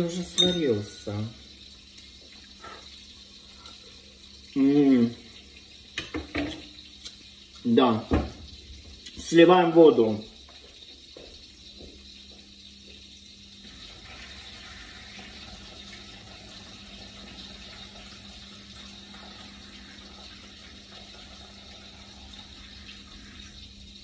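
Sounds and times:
water splashing into sink: 0:04.4 - 0:11.9.

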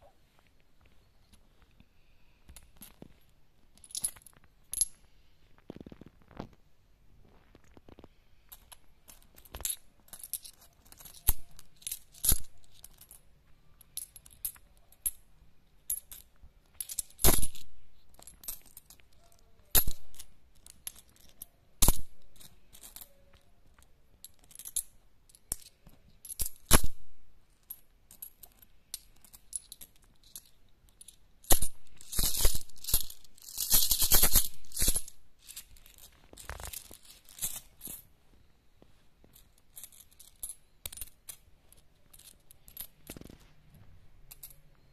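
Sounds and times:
coins clinking onto pile: 0:08.5 - 0:13.2, 0:15.9 - 0:19.1, 0:19.7 - 0:23.4, 0:24.2 - 0:38.0, 0:44.3 - 0:44.7
coins jingling: 0:09.1 - 0:13.2, 0:27.7 - 0:38.0, 0:39.4 - 0:43.2.

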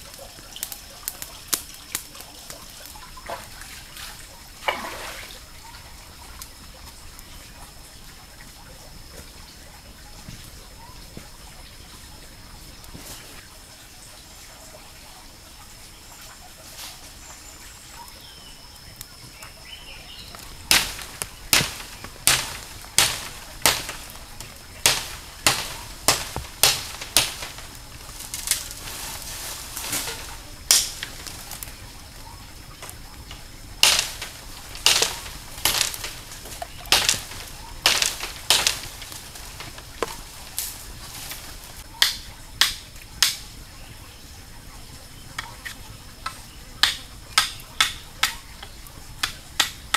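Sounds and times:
knife cutting bamboo: 0:20.6 - 0:31.7, 0:32.8 - 0:43.4.

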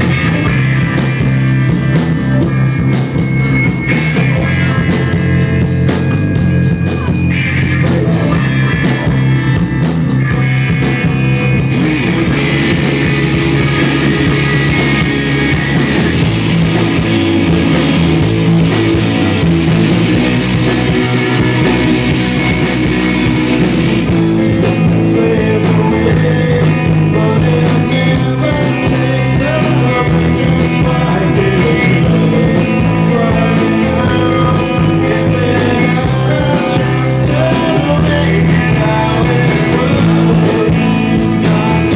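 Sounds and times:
live rock band playing: 0:00.0 - 0:41.9
man singing: 0:24.1 - 0:41.9.

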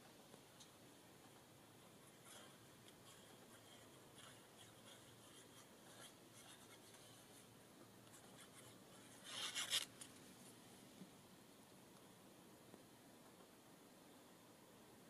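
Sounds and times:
glue bottle scratching paper: 0:08.2 - 0:09.9
paper rustling: 0:08.2 - 0:10.2.

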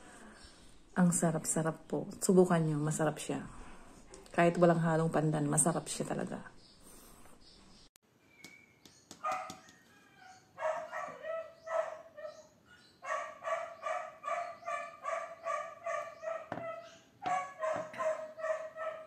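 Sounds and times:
dog barking: 0:09.2 - 0:09.6, 0:10.2 - 0:19.0.

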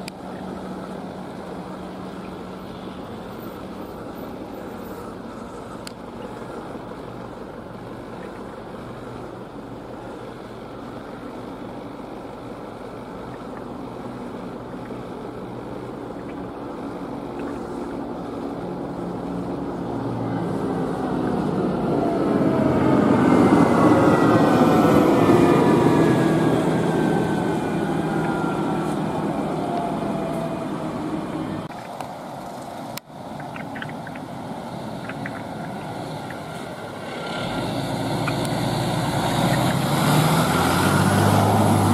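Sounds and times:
low engine hum: 0:00.0 - 0:41.9
vehicle passing close by: 0:15.6 - 0:31.7, 0:33.8 - 0:41.9.

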